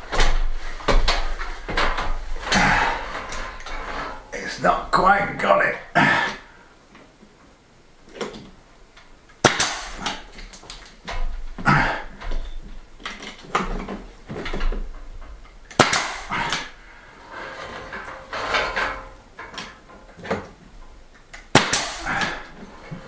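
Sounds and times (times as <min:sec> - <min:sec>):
nail gun firing: 0:09.4 - 0:10.7, 0:15.7 - 0:16.8, 0:21.4 - 0:22.5.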